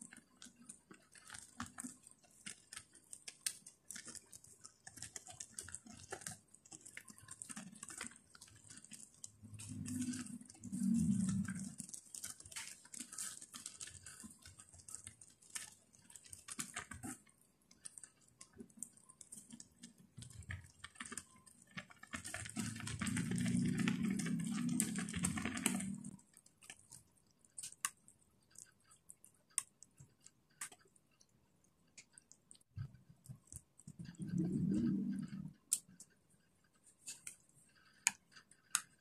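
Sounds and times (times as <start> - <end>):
wet leaves and broth sounds: 0.3 - 29.8, 32.0 - 36.0.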